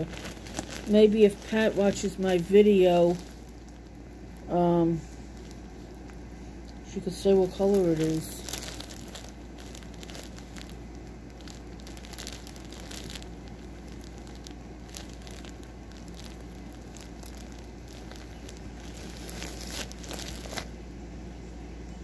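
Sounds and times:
plastic bag crinkling: 0:00.0 - 0:20.8.

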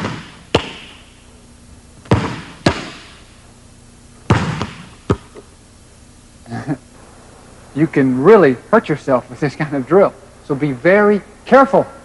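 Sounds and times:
ball slapping into hands: 0:00.0 - 0:01.0, 0:02.0 - 0:03.2, 0:04.3 - 0:05.5
basketball bouncing on hardwood floor: 0:00.0 - 0:01.0, 0:02.0 - 0:03.1, 0:04.3 - 0:05.4.

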